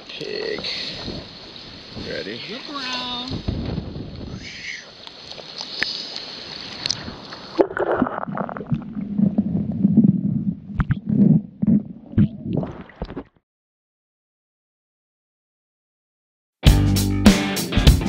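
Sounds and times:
river water rushing and splashing: 0.0s - 8.1s
underwater gurgling rumble: 6.8s - 13.3s.

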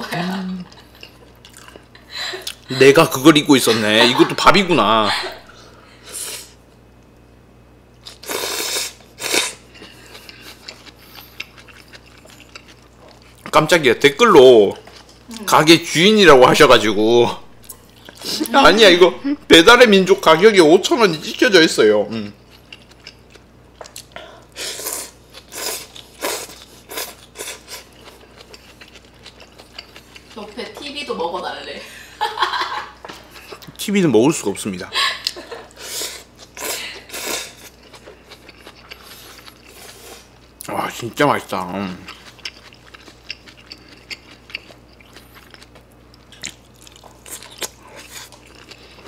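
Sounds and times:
soft wet chewing: 0.6s - 2.7s, 9.0s - 13.6s, 17.6s - 18.6s, 22.1s - 30.8s, 32.9s - 33.9s, 35.2s - 41.1s, 41.7s - 49.0s
person slurping noodles: 8.1s - 9.6s, 35.8s - 37.6s.

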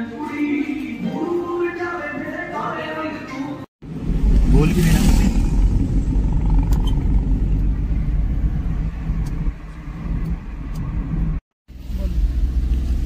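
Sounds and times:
car road noise rumble: 3.8s - 13.0s.

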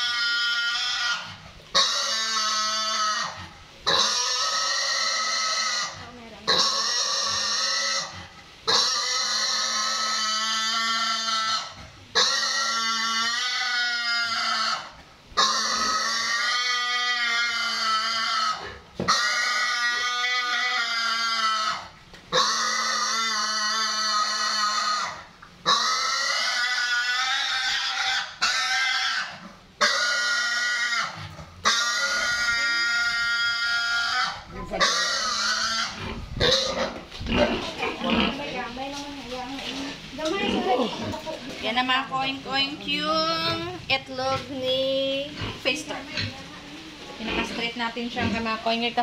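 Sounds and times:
piglet squealing: 0.0s - 8.1s, 8.7s - 21.8s, 22.4s - 36.9s.

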